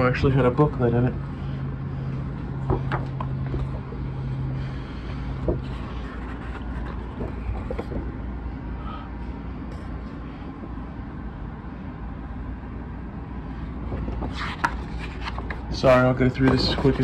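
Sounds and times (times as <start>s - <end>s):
steady low hum: 0.0s - 17.0s
paper pages rustling: 5.4s - 8.1s, 14.0s - 17.0s.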